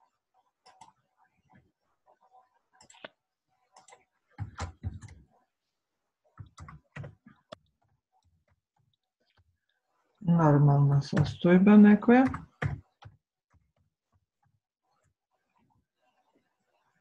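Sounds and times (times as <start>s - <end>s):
computer mouse clicks: 0.6s - 1.0s, 2.8s - 5.2s.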